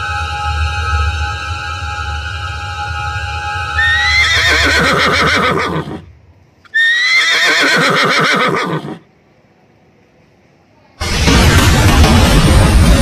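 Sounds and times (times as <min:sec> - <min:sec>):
horse whinnying: 0:03.8 - 0:06.1, 0:06.7 - 0:09.0.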